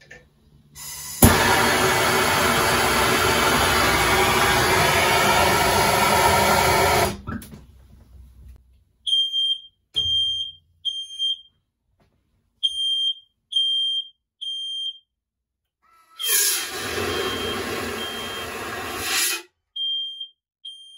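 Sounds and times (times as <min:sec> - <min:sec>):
smoke alarm beeping: 0:09.1 - 0:11.5, 0:12.6 - 0:15.1, 0:16.9 - 0:18.7, 0:19.8 - 0:20.9.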